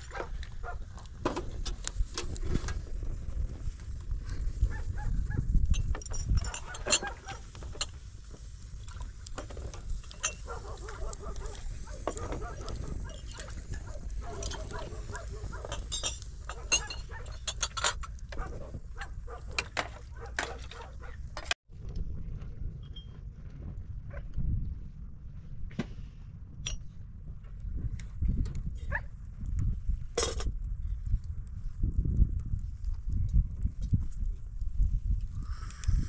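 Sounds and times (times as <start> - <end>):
wind rumbling on microphone: 0.0 - 36.0
wood fire crackling: 7.4 - 16.7
glasses clinking: 15.7 - 18.0.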